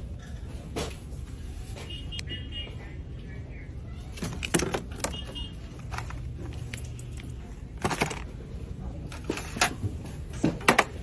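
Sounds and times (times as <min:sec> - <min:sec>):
plastic bottles clacking: 0:04.2 - 0:05.2, 0:07.7 - 0:08.5.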